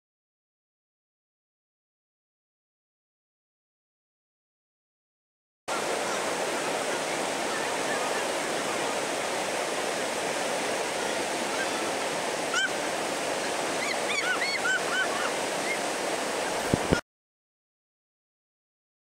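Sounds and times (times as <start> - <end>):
whitewater rushing: 5.7 - 17.0.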